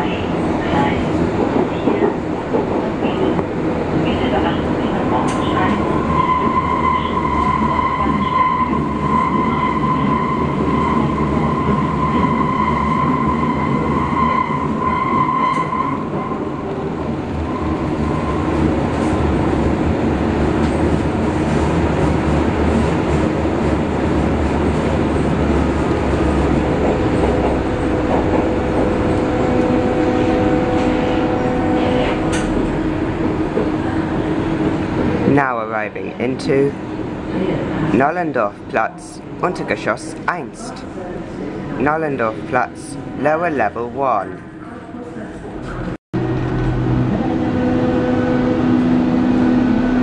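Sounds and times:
train wheels rumbling on rail: 0.0s - 38.0s, 44.3s - 50.0s
lower whine: 46.2s - 50.0s.

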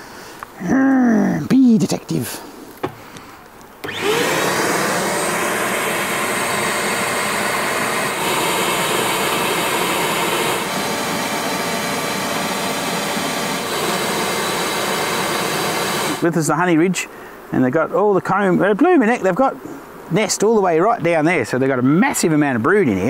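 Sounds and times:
vacuum motor whining: 3.8s - 16.3s.

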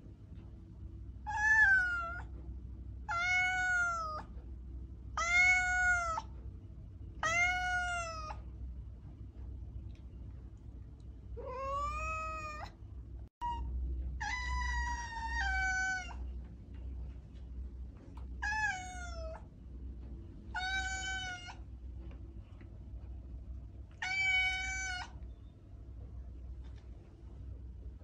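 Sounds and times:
cat meowing: 1.3s - 2.3s, 3.1s - 4.3s, 5.2s - 6.3s, 7.2s - 8.4s, 11.4s - 12.8s, 13.4s - 16.2s, 18.4s - 19.4s, 20.5s - 21.6s, 24.0s - 25.2s.

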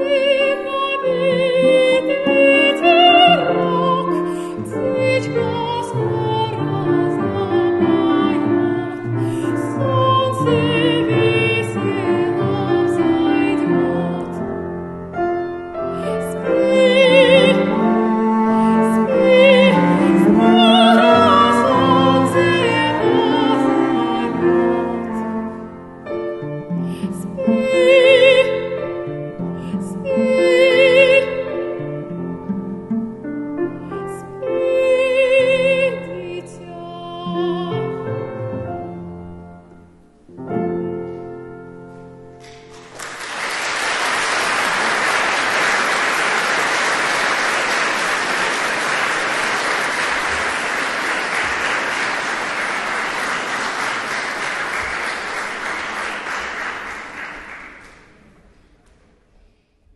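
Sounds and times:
woman singing classical: 0.0s - 39.6s
cello: 0.0s - 42.6s
piano: 0.0s - 59.6s
audience applause: 42.4s - 58.3s.

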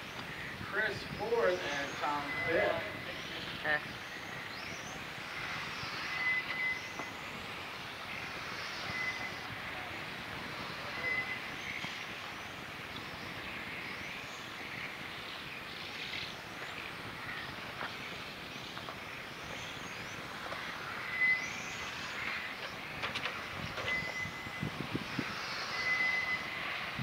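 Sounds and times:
tyres hissing on asphalt: 0.0s - 27.0s
short electronic beep: 1.7s - 3.1s, 6.1s - 7.1s, 8.8s - 9.4s, 10.9s - 11.5s, 23.9s - 24.7s, 25.7s - 26.6s.

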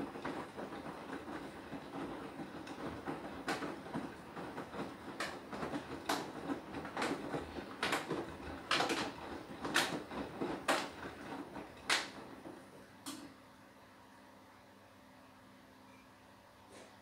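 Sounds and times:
laundry thudding in washing machine: 0.0s - 13.4s
washing machine hum: 0.0s - 17.0s.

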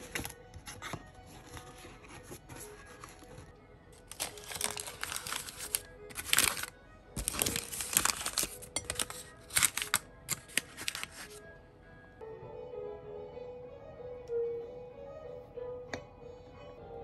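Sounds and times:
paper crinkling: 0.0s - 11.4s
soft background music: 0.0s - 17.0s.

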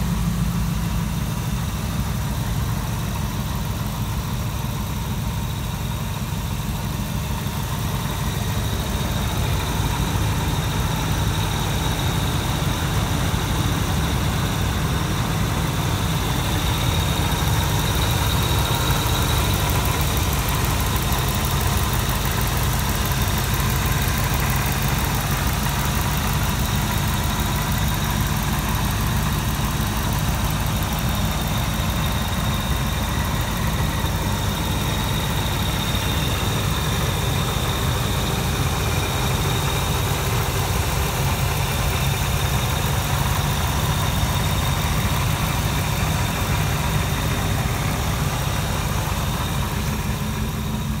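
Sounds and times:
engine idling with high whine: 0.0s - 51.0s.

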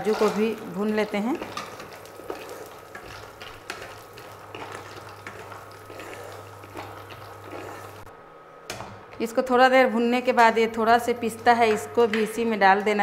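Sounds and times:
faint sizzle: 0.0s - 8.1s.

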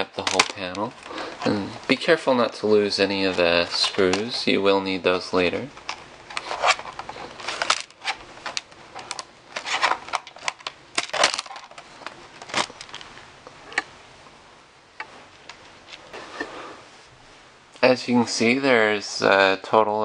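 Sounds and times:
plastic clips clicking and snapping: 0.1s - 1.1s.

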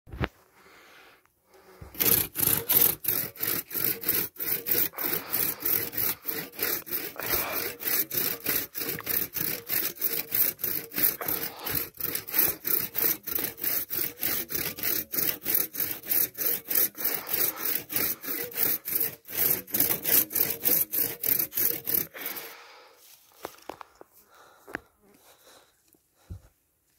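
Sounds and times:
hand saw rasping through wood: 1.6s - 22.9s.

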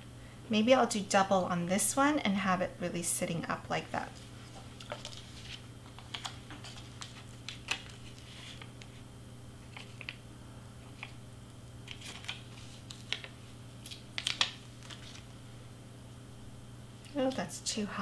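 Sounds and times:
cardstock clicks and rustles: 4.5s - 9.0s, 9.6s - 10.2s, 10.9s - 11.2s, 11.8s - 15.2s.

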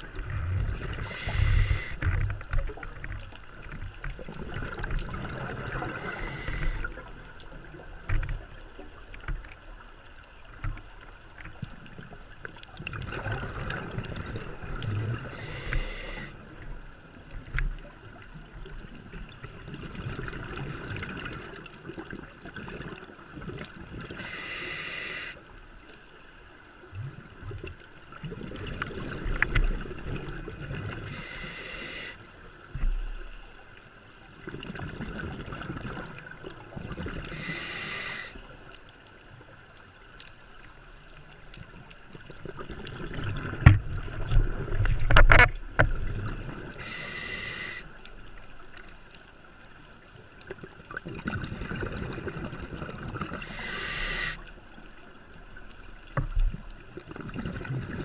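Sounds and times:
regulator hissing inhale: 0.9s - 2.1s, 5.8s - 7.0s, 15.3s - 16.4s, 24.2s - 25.4s, 31.0s - 32.3s, 37.3s - 38.4s, 46.8s - 47.9s, 53.4s - 54.5s.

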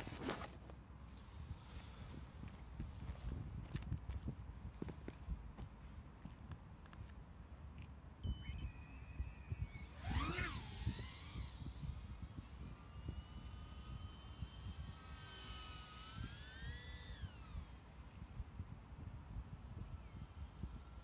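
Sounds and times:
quadcopter motors whining: 0.0s - 3.4s, 7.8s - 21.0s.

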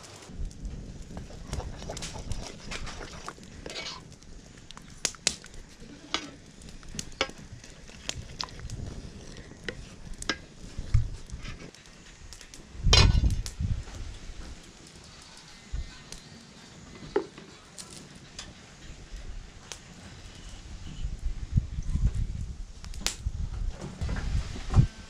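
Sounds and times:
spoon stirring in metal pan: 1.5s - 4.1s.

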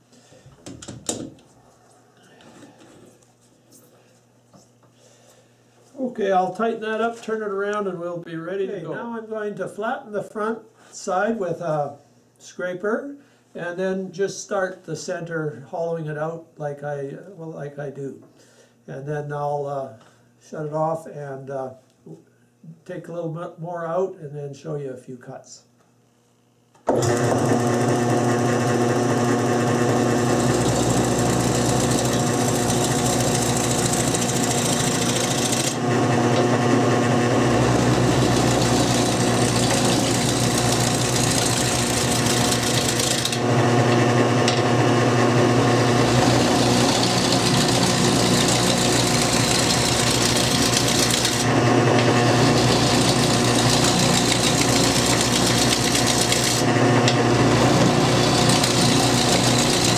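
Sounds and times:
lathe motor hum: 26.9s - 59.9s
scraper cutting spinning wood: 27.0s - 59.9s.

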